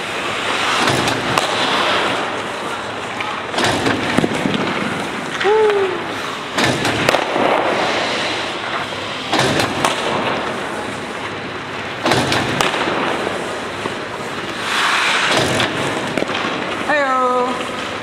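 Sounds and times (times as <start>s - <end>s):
hockey sticks hitting pucks: 0.0s - 18.0s
scraping hiss on ice: 7.7s - 9.3s, 13.2s - 16.1s.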